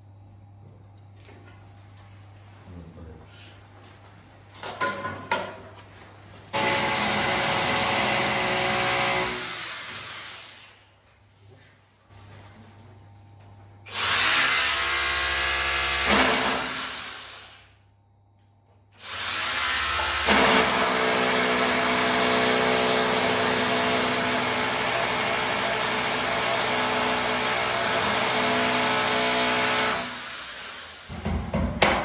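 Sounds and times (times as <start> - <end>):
cordless drill drilling into wall: 6.6 - 10.8, 13.9 - 17.8, 19.0 - 31.1.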